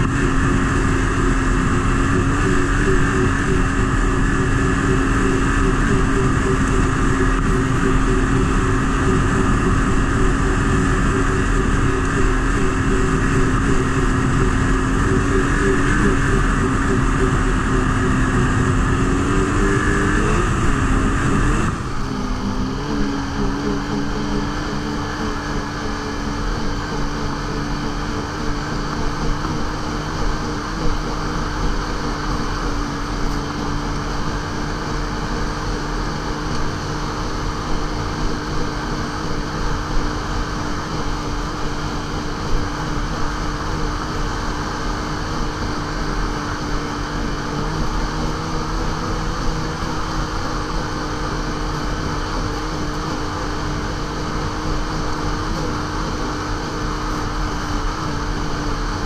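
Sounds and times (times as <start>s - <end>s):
snowmobile engine running: 0.0s - 59.0s.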